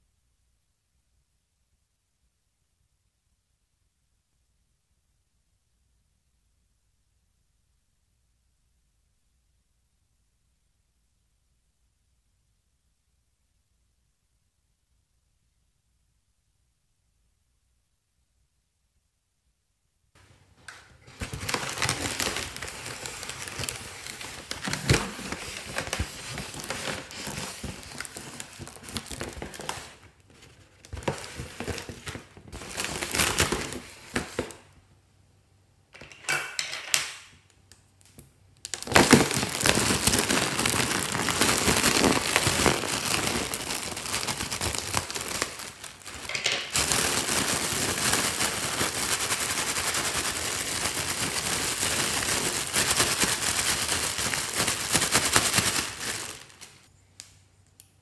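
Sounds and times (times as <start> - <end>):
foil balloon crinkling: 21.0 - 34.6, 38.6 - 56.9.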